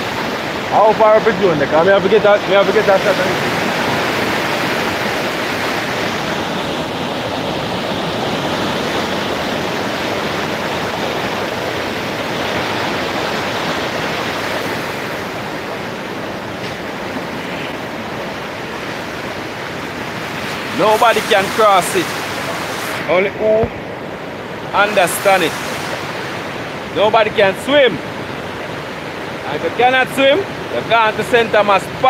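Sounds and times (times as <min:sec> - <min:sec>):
river rapids rushing over rocks: 0:00.0 - 0:32.0.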